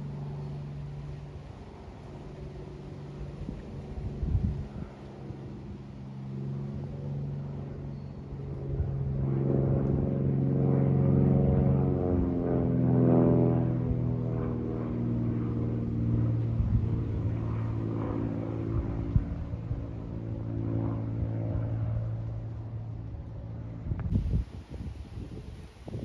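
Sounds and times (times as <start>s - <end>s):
aircraft engine drone: 0.0s - 26.0s
wind buffeting microphone: 3.3s - 5.8s, 16.4s - 17.7s, 18.6s - 20.1s, 23.7s - 26.0s.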